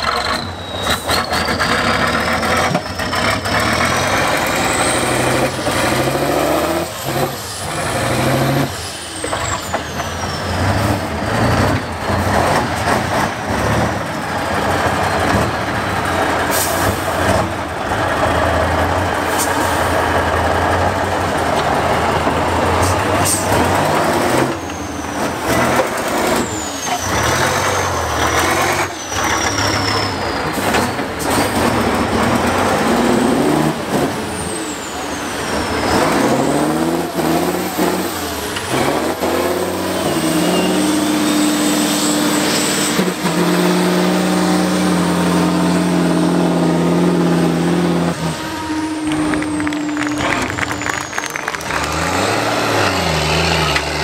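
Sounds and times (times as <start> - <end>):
diesel truck engine revving: 0.0 - 54.0
engine knocks: 49.0 - 52.4.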